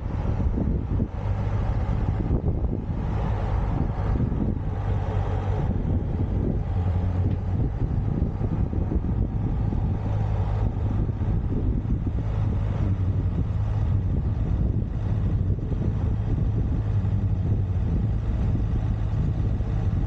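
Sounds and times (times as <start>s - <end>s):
road noise: 0.0s - 20.0s
vehicle engine drone: 0.0s - 20.0s.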